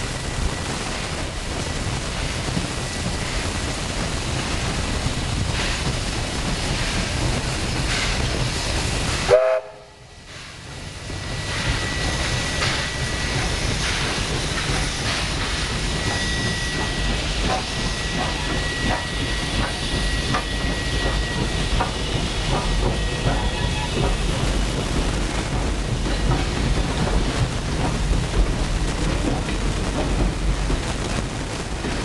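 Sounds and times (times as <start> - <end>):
steam train rumbling past: 0.0 - 32.0
high steady squeal: 10.4 - 27.2.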